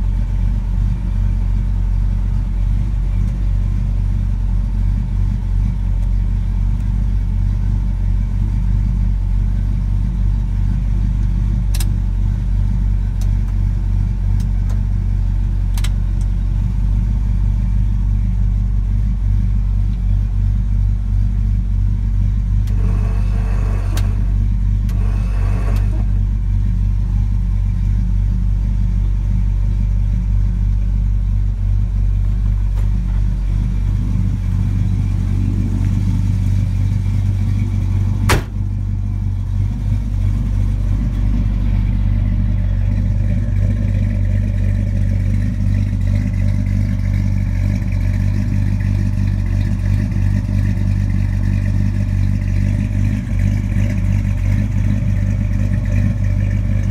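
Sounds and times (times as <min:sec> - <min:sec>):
pickup engine idling: 0:00.0 - 0:56.9
sharp knock: 0:38.3 - 0:38.6.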